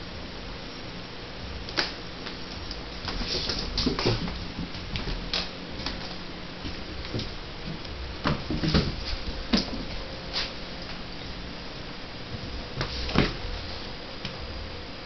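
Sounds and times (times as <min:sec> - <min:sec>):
kitten scampering on tiled floor: 0:03.0 - 0:05.2.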